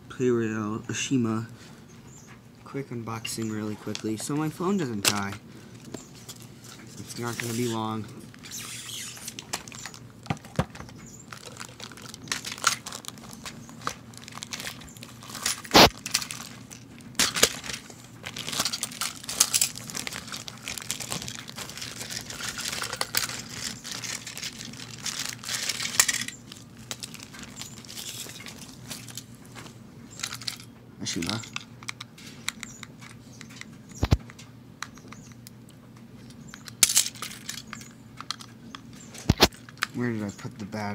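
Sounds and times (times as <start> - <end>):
packaging crinkling and tearing: 5.2 - 30.6.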